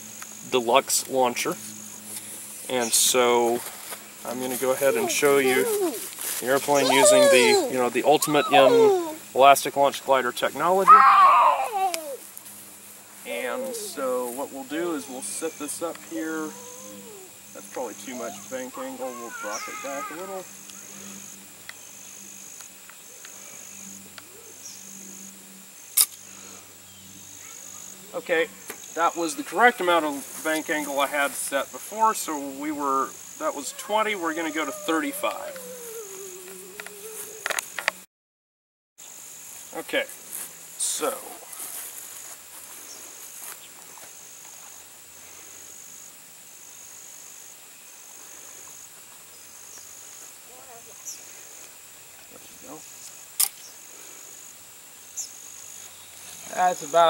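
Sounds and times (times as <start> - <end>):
insects trilling: 0.0 - 38.0, 39.0 - 57.0
faint clicks: 36.4 - 38.0.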